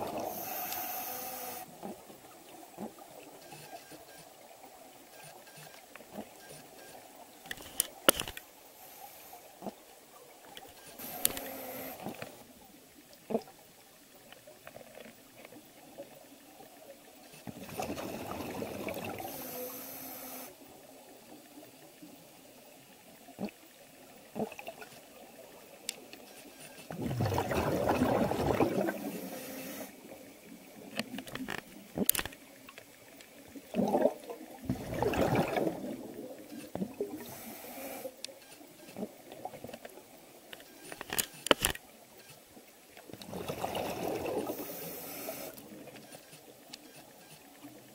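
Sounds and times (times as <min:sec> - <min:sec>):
underwater exhaled bubbles: 0:00.0 - 0:00.9, 0:17.6 - 0:19.5, 0:26.9 - 0:31.1, 0:33.5 - 0:37.5, 0:43.1 - 0:45.9
low hiss: 0:00.0 - 0:27.0, 0:28.4 - 0:34.6, 0:35.4 - 0:47.9
faint clicks: 0:10.4 - 0:12.4, 0:30.9 - 0:33.5.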